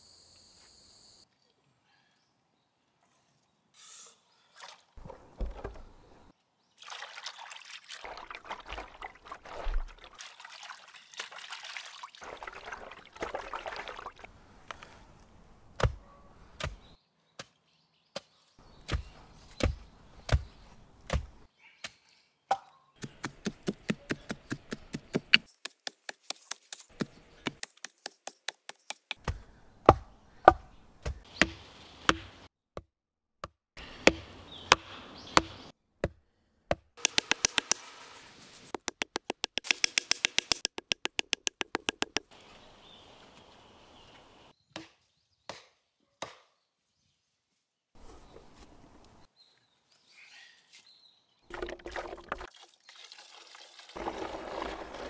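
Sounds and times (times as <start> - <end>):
water sloshing in a basin: 6.8 - 14.3, 51.5 - 55.0
wooden pestle and mallet pounding: 23.0 - 34.8, 35.4 - 37.8, 38.7 - 42.3.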